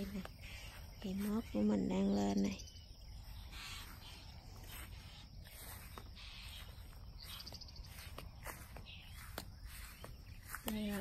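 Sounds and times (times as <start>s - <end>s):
soft rustles: 3.2s - 11.0s.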